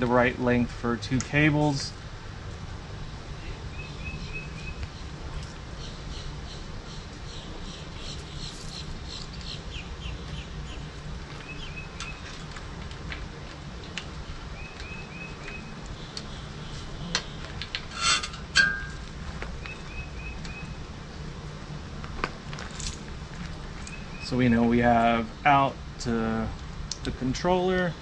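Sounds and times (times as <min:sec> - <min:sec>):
low background noise: 0:00.0 - 0:28.0
birds chirping: 0:03.3 - 0:12.5, 0:13.4 - 0:21.3, 0:23.5 - 0:25.7.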